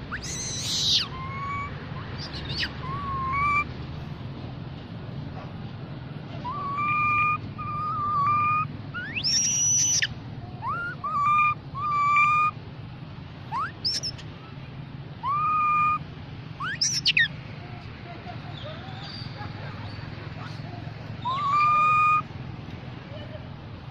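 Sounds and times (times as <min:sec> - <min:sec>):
shrill monkey call: 0:00.0 - 0:03.7, 0:06.4 - 0:12.6, 0:13.5 - 0:14.3, 0:15.2 - 0:16.0, 0:16.6 - 0:17.3, 0:18.5 - 0:22.3
young macaque coo calls: 0:00.1 - 0:03.6, 0:06.4 - 0:12.5, 0:13.5 - 0:14.2, 0:15.2 - 0:16.0, 0:16.6 - 0:17.3, 0:21.2 - 0:22.2.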